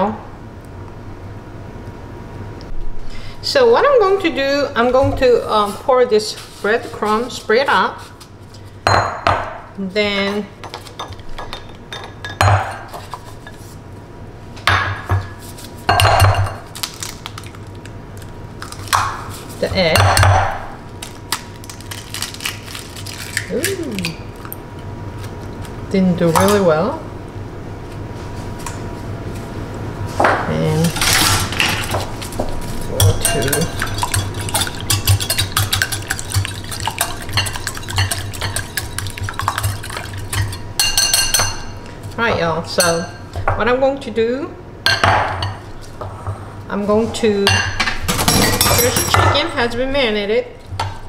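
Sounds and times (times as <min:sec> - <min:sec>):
whisk clicking against glass bowl: 0:33.2 - 0:41.5.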